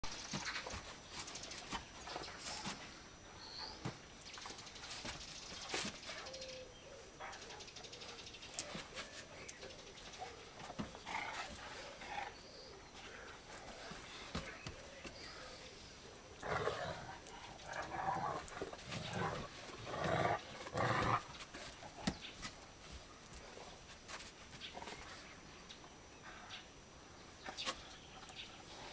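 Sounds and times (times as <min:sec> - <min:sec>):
dogs growling: 0:16.3 - 0:22.1.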